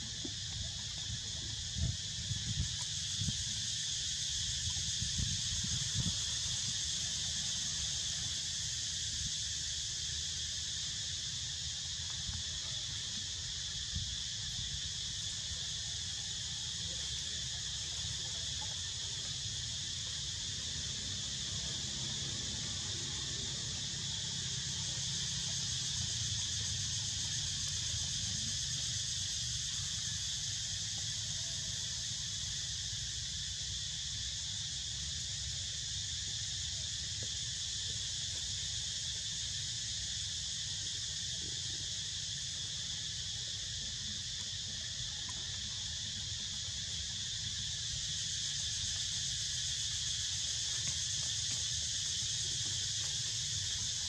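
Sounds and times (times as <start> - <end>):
insects buzzing: 0.0 - 54.0.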